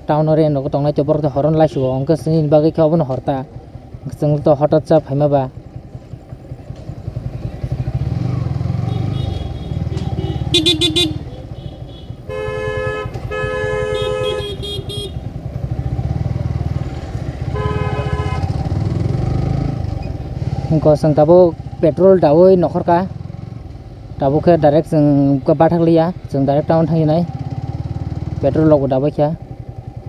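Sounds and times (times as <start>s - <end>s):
motorcycle engine running: 0.3s - 30.0s
vehicle horns honking: 8.7s - 15.4s, 17.4s - 18.7s.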